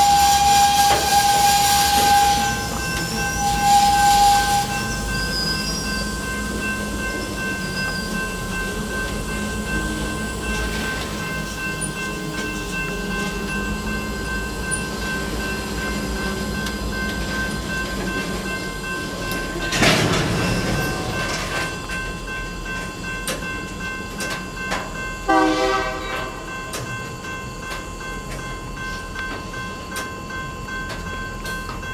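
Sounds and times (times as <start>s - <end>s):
freight cars rolling: 0.0s - 25.0s
short horn blast: 25.3s - 26.3s.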